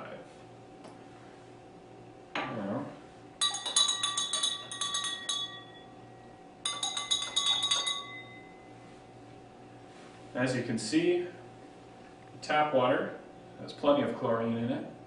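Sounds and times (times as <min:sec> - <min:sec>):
spoon clinking in glass: 0:03.4 - 0:06.0, 0:06.6 - 0:08.6.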